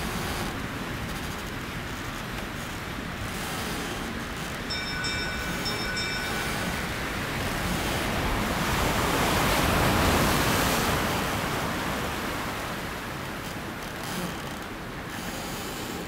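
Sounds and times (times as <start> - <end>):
ocean surf hissing: 4.7 - 13.2.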